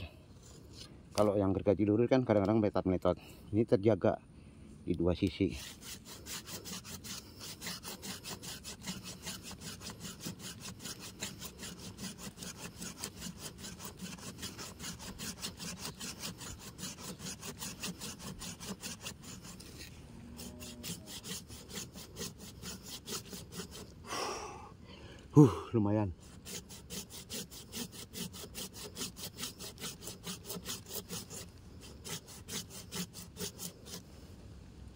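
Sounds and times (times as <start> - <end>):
pruning saw cutting a root: 5.2 - 24.0, 26.2 - 34.1.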